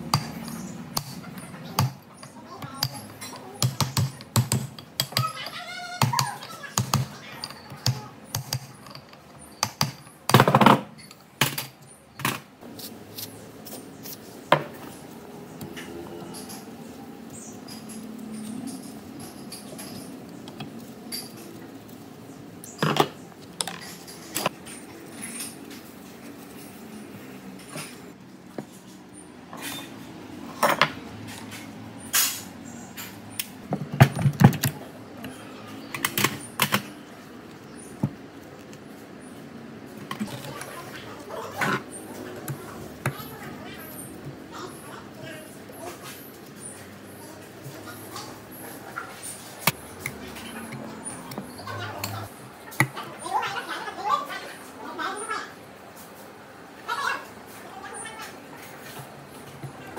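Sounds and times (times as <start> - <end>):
metal tools clinking: 15.8 - 21.6.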